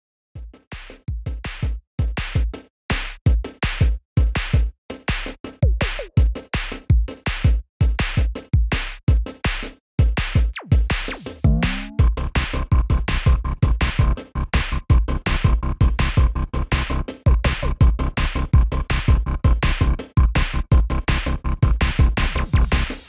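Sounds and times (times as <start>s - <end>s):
drum machine beat: 0.4s - 14.2s, 20.2s - 23.0s
sliding synth sounds: 11.5s - 12.0s.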